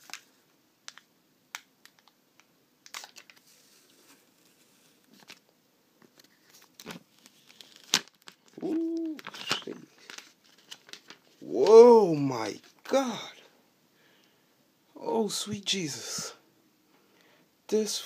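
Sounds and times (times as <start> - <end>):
plastic film peeling and crinkling: 0.9 - 11.5.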